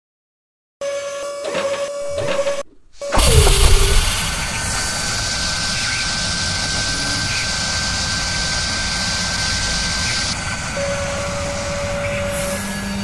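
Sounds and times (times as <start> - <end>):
steady low hum: 2.0 - 10.6
jet-like rushing with high whistle: 2.0 - 12.6.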